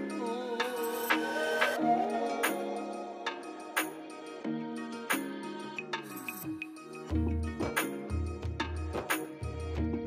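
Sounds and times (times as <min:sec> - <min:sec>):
sharp percussive strikes: 0:02.4 - 0:04.4, 0:05.0 - 0:09.7.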